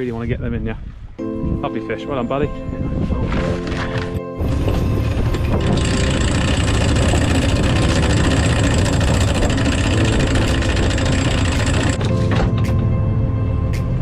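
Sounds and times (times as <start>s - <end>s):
boat engine running: 3.4s - 13.0s
winch hauling anchor chain: 4.5s - 12.6s.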